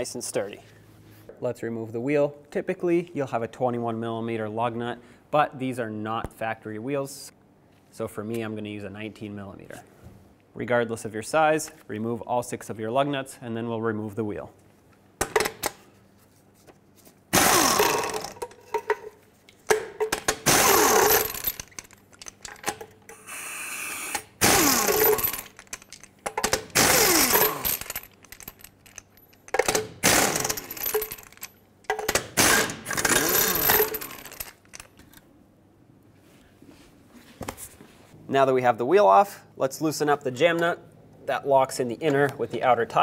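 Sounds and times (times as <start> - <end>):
impact wrench bursts: 17.3 - 18.4, 20.4 - 21.9, 23.2 - 31.5, 32.1 - 34.5.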